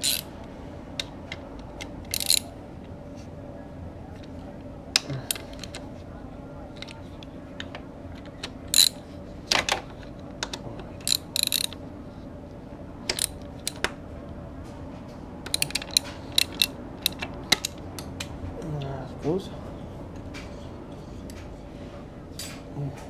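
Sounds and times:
metal tool clicking on engine parts: 0.0 - 0.2, 1.8 - 2.4, 8.7 - 9.0, 11.0 - 11.8, 15.5 - 18.1
steady low hum: 0.0 - 23.0.

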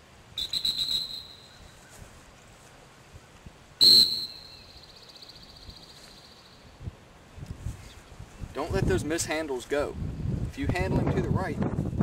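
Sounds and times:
dog whistle blasts: 0.4 - 1.6, 3.8 - 4.9.

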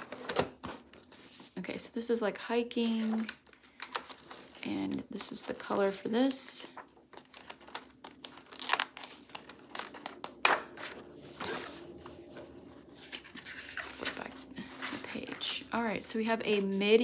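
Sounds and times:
paper pages rustling: 3.0 - 15.7.

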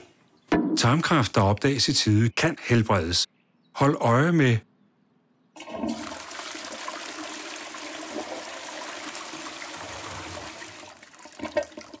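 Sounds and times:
toilet flushing: 5.6 - 12.0.

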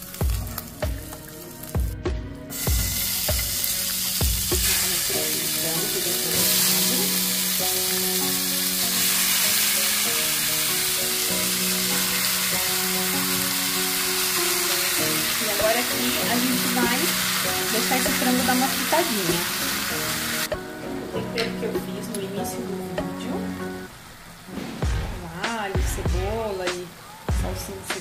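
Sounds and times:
chicken sizzling in a frying pan: 0.0 - 20.5.

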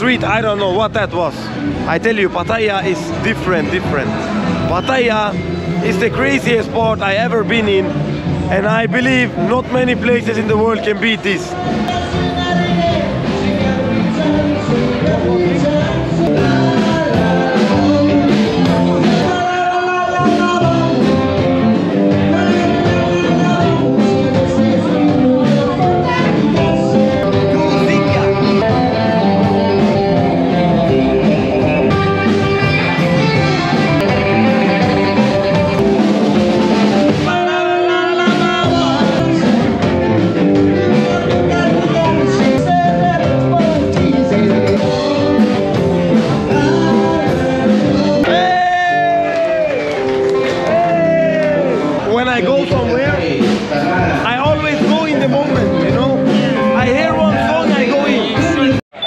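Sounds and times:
music with singing voice: 1.2 - 59.0.

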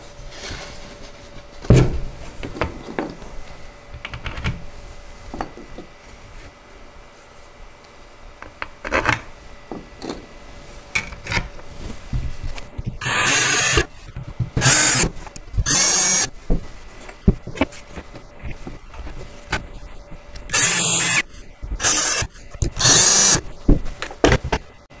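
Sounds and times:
cordless drill driving screws: 13.0 - 13.9, 14.6 - 16.3, 20.5 - 23.4.

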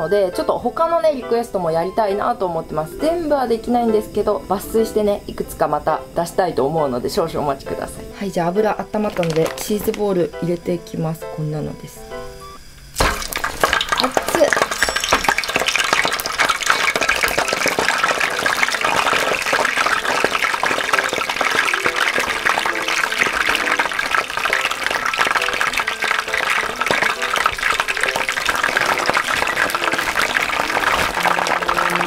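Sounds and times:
food deep-frying in oil: 5.4 - 10.5, 12.6 - 32.0
balls dropped into oil: 9.0 - 10.1, 13.0 - 32.0.

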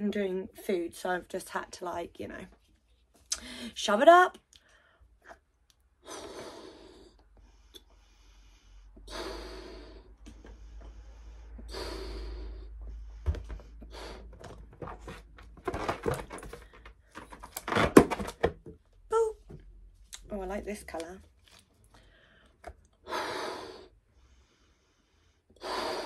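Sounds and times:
breaths blowing up balloon: 6.0 - 18.4, 22.0 - 26.0.

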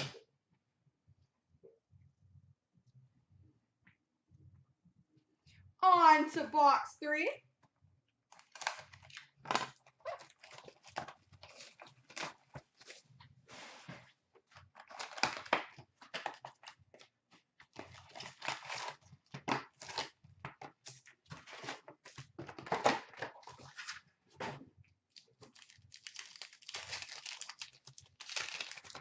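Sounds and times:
card packs crinkling and tearing: 8.3 - 13.0, 14.6 - 16.8, 17.6 - 20.2, 25.2 - 29.0.

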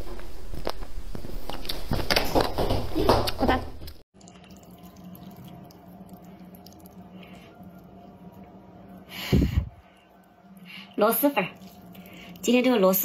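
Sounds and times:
low steady hum: 3.6 - 13.0
noodles dripping into broth: 4.2 - 8.6.

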